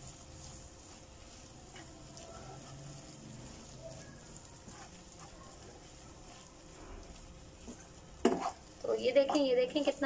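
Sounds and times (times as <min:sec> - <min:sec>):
spatula scraping metal pan: 0:08.2 - 0:09.5.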